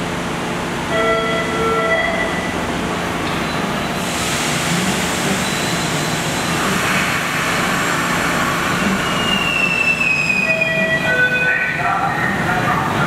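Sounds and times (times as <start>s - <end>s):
train wheels rumbling on rails: 2.5s - 11.0s
high-pitched wheel squeal: 8.8s - 11.5s.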